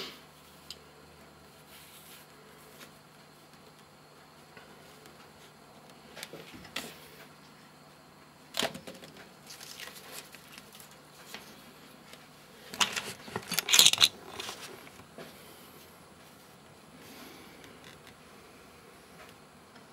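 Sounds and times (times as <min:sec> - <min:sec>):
rustling and crackling of plastic strip: 0:08.6 - 0:15.0.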